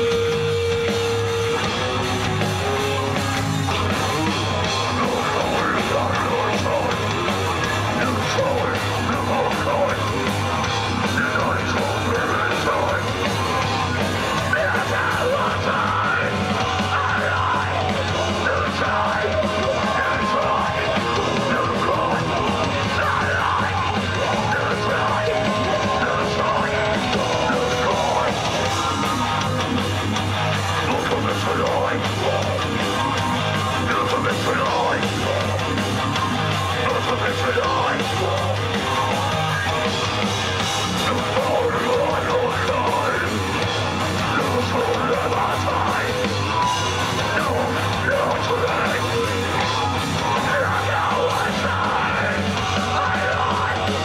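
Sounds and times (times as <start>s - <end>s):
distorted electric guitar and bass: 0.0s - 54.0s
drum kit: 0.0s - 54.0s
shouted vocals: 4.8s - 29.8s, 40.9s - 54.0s.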